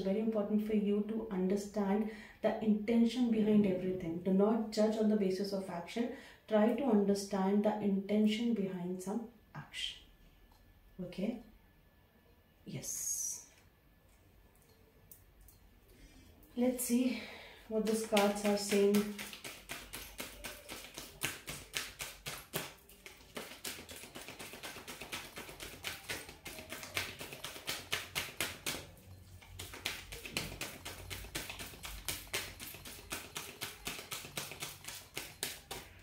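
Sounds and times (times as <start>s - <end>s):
cards being shuffled: 17.9s - 36.0s.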